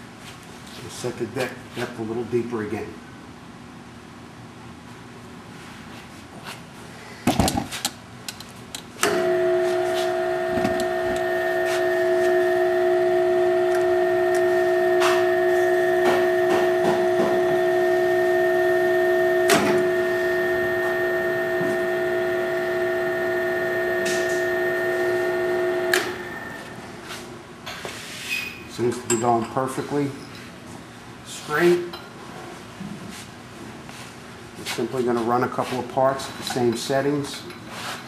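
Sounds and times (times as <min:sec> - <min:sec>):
drill press motor whining: 0:09.0 - 0:26.7.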